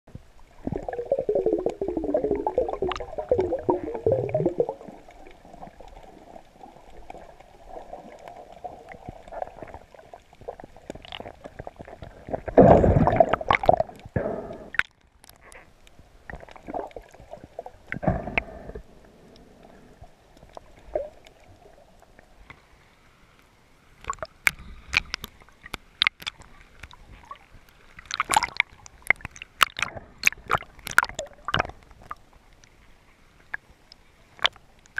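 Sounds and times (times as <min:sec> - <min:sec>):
water surging: 0:00.2 - 0:14.1
water splashing: 0:00.4 - 0:18.5, 0:24.0 - 0:32.3
muffled underwater gurgling: 0:00.5 - 0:14.8.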